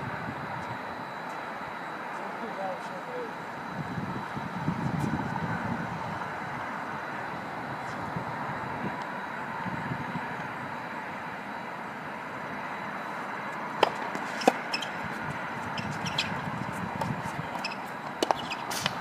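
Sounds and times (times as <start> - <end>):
racket hitting tennis ball: 13.8 - 15.1, 17.0 - 19.0
tennis ball bouncing: 13.8 - 19.0.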